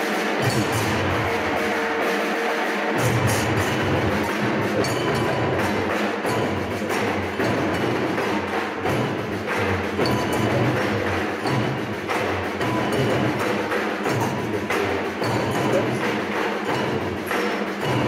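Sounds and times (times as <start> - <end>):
hand percussion: 0.0 - 18.0.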